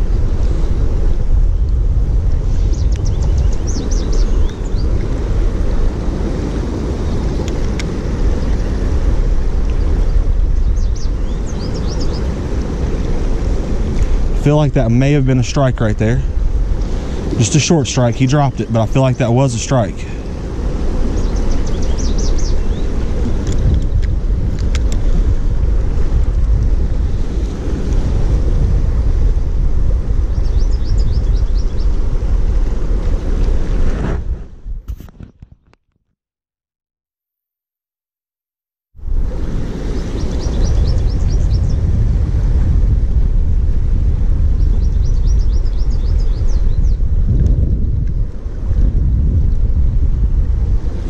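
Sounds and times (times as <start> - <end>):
wind buffeting microphone: 0.0 - 35.6, 39.0 - 51.0
flowing stream: 11.1 - 30.2.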